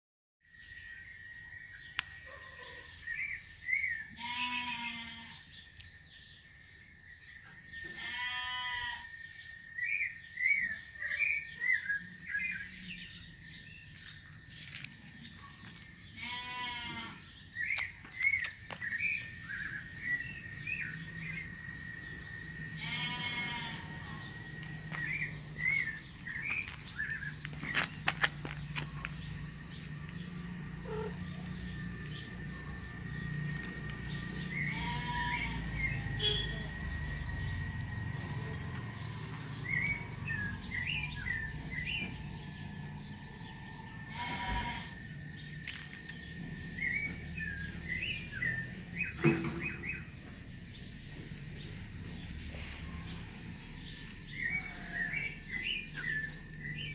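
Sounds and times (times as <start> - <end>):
animal bleating: 4.1 - 5.5, 7.8 - 9.1, 16.1 - 17.3, 22.7 - 24.3, 30.8 - 31.5, 34.5 - 36.6, 44.1 - 45.0, 54.6 - 55.2
bird-like chirps: 17.4 - 43.4.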